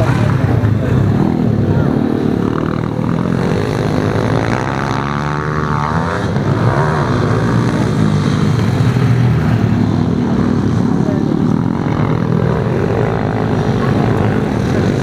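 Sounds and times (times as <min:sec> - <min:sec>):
motorbike engines racing: 0:00.0 - 0:15.0.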